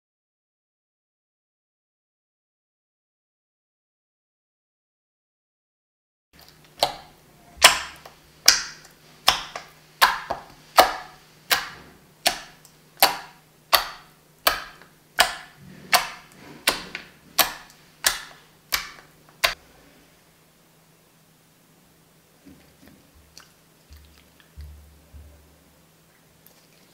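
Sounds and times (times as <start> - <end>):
slime squeezed wet pops: 6.8 - 19.6.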